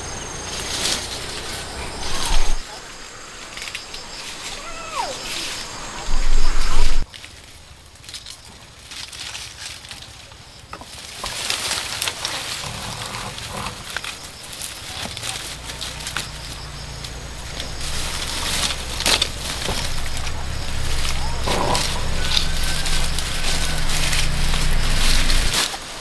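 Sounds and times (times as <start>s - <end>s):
low hum: 0.0s - 4.6s, 15.4s - 26.0s
dry leaves rustling and snapping: 0.2s - 2.7s, 3.4s - 26.0s.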